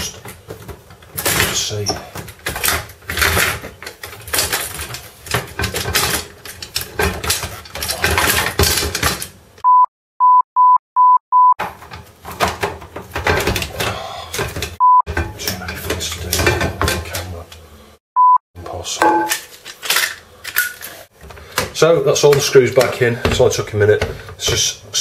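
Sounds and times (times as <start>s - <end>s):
plastic door parts scraping: 0.0s - 9.4s, 11.6s - 17.4s
censor bleep: 9.6s - 11.6s, 18.2s - 18.4s, 19.0s - 19.3s.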